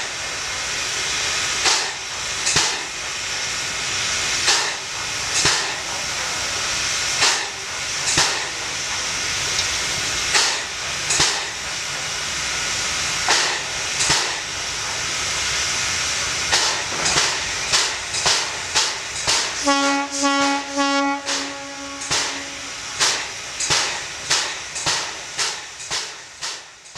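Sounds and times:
sharp steam puffs: 0:00.0 - 0:26.9
steam locomotive hissing: 0:00.0 - 0:26.9
steam whistle: 0:19.6 - 0:23.1.

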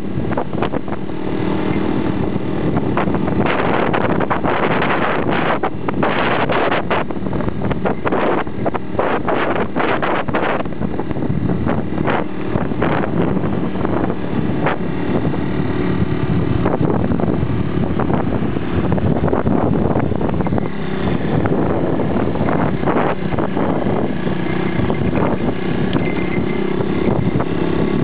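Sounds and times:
motorcycle engine running: 0:00.0 - 0:28.0
wind buffeting microphone: 0:00.0 - 0:28.0.

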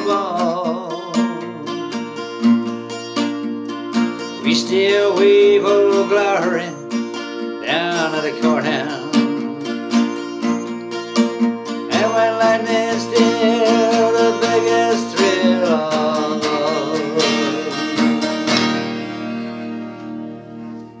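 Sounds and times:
man singing: 0:00.0 - 0:02.4, 0:04.2 - 0:10.2, 0:11.8 - 0:18.4
acoustic guitar strumming: 0:00.0 - 0:21.0.

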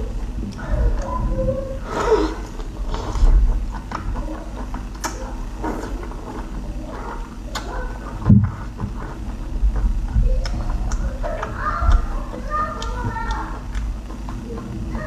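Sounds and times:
wet chewing and sucking: 0:01.8 - 0:15.0
small irregular clicks: 0:09.6 - 0:14.8.

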